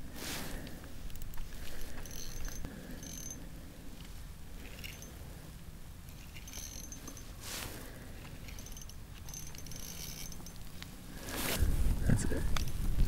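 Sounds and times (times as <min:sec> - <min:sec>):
low steady rumble: 0:00.0 - 0:13.0
fishing reel whirring and ticking: 0:01.1 - 0:03.5, 0:04.6 - 0:05.2, 0:06.0 - 0:07.4, 0:08.1 - 0:10.6.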